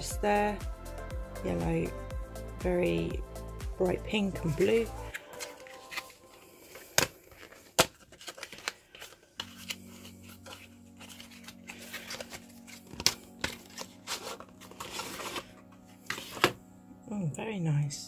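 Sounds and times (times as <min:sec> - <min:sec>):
cardboard rustling and tearing: 0:05.1 - 0:16.6.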